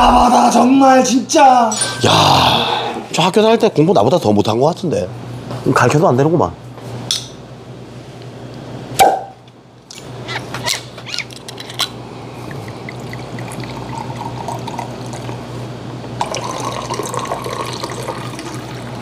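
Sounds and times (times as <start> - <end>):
glass clinking: 1.7 - 2.1
liquor pouring into glass: 12.4 - 15.4, 16.2 - 19.0.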